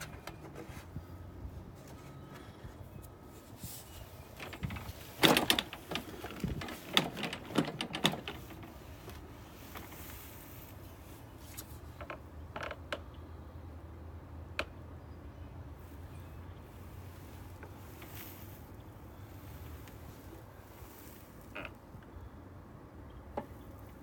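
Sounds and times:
metallic clicks and rattles: 0:04.3 - 0:09.2.

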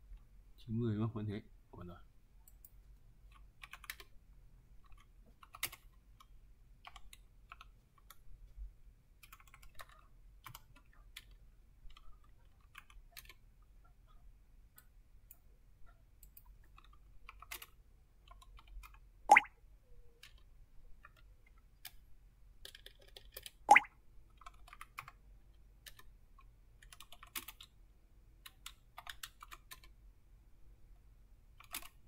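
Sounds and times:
computer keyboard keystrokes: 0:03.3 - 0:04.1, 0:04.9 - 0:08.2, 0:09.2 - 0:13.4, 0:22.6 - 0:23.6, 0:26.8 - 0:27.7, 0:28.4 - 0:30.0, 0:31.6 - 0:32.0.

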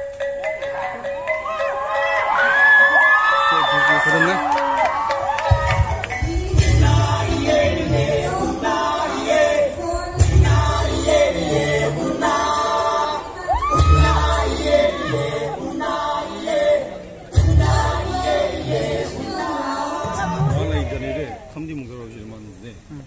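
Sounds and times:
deep bass note: 0:05.5 - 0:08.7, 0:09.9 - 0:11.9, 0:13.7 - 0:15.3, 0:17.4 - 0:19.1, 0:20.0 - 0:21.4
group singing over loudspeakers: 0:05.5 - 0:21.3.

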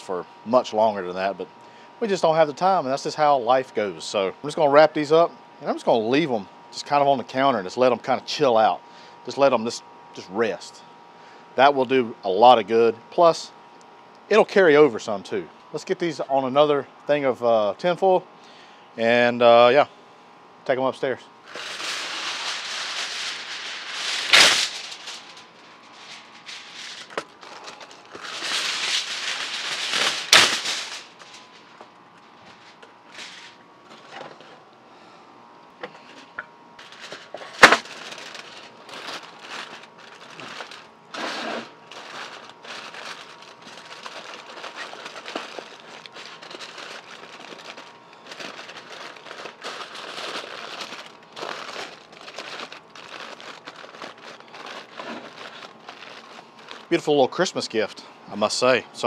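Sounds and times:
foil crinkling: 0:21.4 - 0:31.8, 0:36.8 - 0:57.4
aluminium foil tearing: 0:21.5 - 0:31.8, 0:36.8 - 0:57.1.

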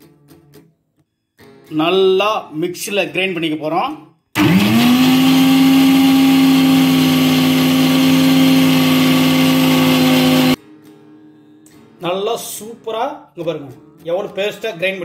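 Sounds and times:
mixer grinder running: 0:04.4 - 0:10.6.

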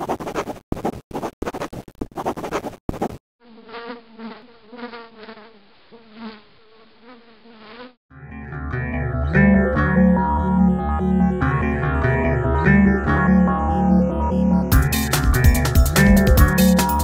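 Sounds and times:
pencil scribbling on paper: 0:00.0 - 0:03.2.

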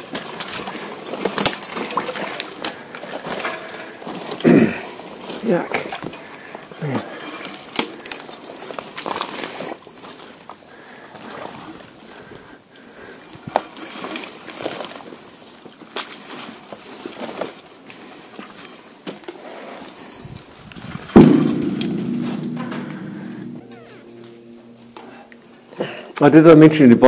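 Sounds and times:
sharp thump: 0:21.2 - 0:23.9.

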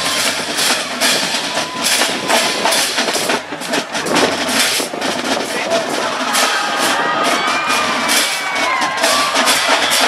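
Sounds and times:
people clapping: 0:06.3 - 0:10.0.

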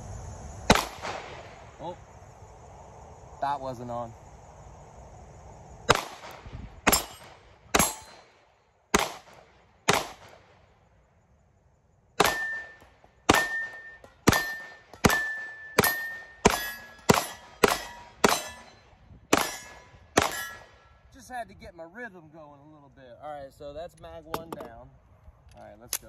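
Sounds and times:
pistol shots: 0:00.7 - 0:01.5, 0:05.9 - 0:10.5, 0:12.2 - 0:20.8
steel target ringing: 0:06.9 - 0:08.3, 0:12.2 - 0:21.0.

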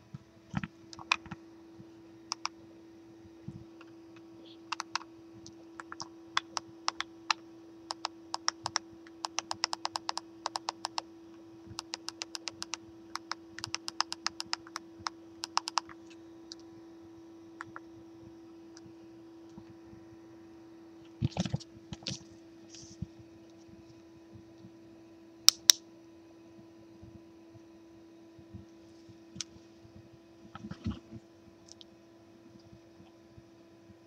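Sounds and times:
steady low hum: 0:00.0 - 0:34.0
keyboard keys clicking: 0:02.3 - 0:02.5, 0:04.7 - 0:05.1, 0:05.8 - 0:11.0, 0:11.8 - 0:14.8, 0:15.4 - 0:16.6.

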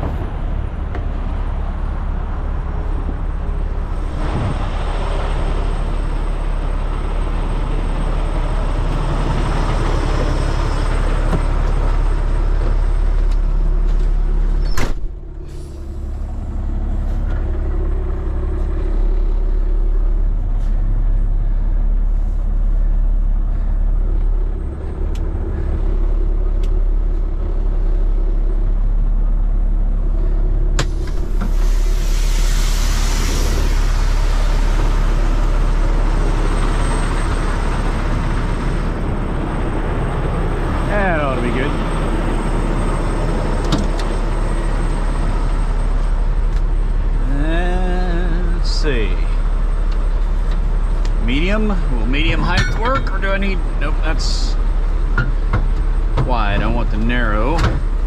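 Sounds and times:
diesel engine idling: 0:00.0 - 0:58.0
door shutting click: 0:14.6 - 0:15.2
air hiss: 0:30.9 - 0:35.3.

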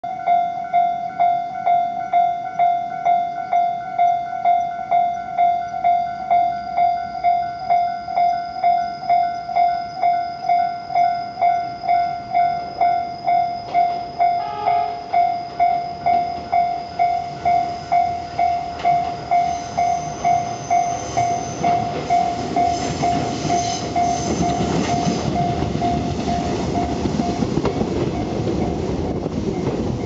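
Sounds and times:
level-crossing alarm dinging: 0:00.0 - 0:30.0.

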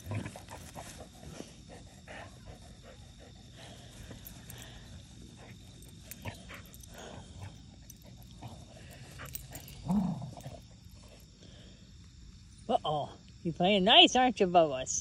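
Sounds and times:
dogs grunting: 0:00.0 - 0:11.7.

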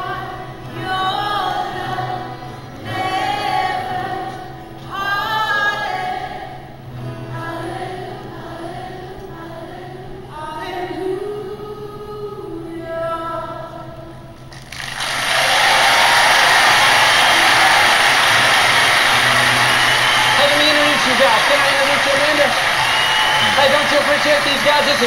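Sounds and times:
man and woman singing: 0:00.0 - 0:14.1
audience applause: 0:14.5 - 0:25.0.

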